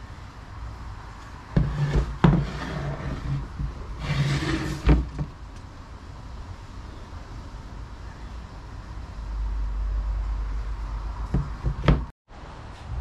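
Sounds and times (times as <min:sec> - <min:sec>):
board scraping on wood: 0:01.5 - 0:05.3.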